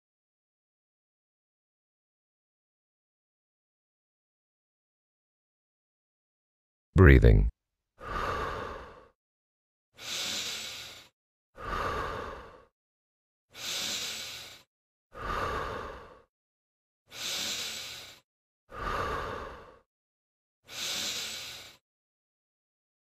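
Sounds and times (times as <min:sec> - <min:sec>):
person breathing slowly: 0:08.0 - 0:09.2, 0:10.0 - 0:12.7, 0:13.5 - 0:16.3, 0:17.1 - 0:19.9, 0:20.7 - 0:21.8.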